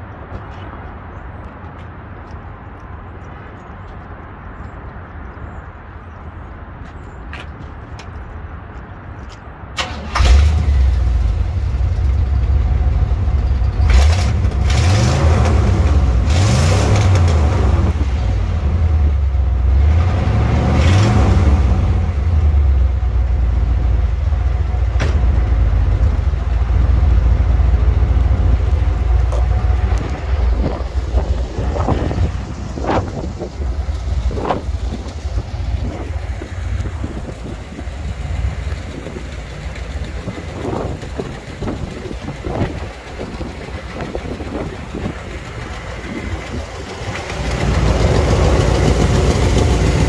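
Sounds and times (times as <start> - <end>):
car engine idling: 9.8 - 16.3, 21.8 - 50.0
car engine starting and revving: 9.8 - 50.0.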